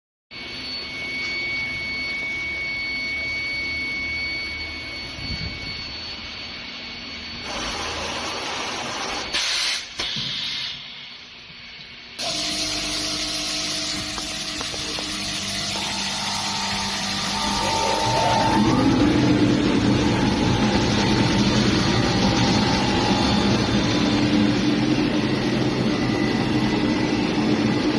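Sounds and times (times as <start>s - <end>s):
thin high whine: 0.3s - 27.9s
pipe threading machine running: 12.2s - 27.9s.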